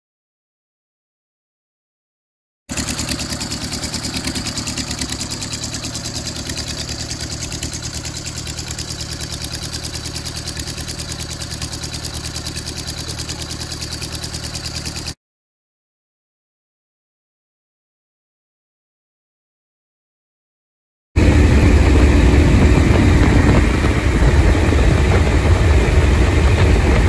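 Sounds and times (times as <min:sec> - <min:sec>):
light plane engine idling: 0:02.7 - 0:15.2, 0:21.2 - 0:27.0.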